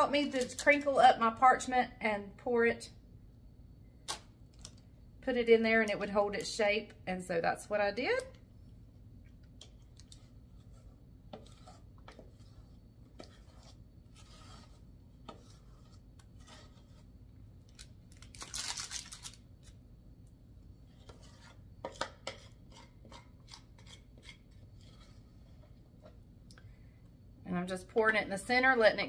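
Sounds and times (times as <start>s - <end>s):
metal spoon scraping saucepan: 10.0s - 17.2s, 20.9s - 26.2s.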